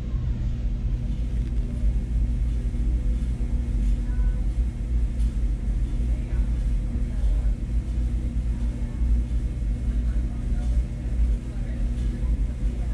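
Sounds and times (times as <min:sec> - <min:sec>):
machinery rumble and hum: 0:00.0 - 0:12.9.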